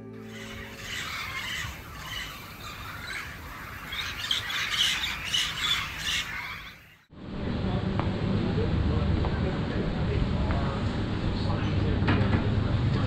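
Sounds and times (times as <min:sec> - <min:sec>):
parrots squawking and chattering: 0:00.2 - 0:07.0.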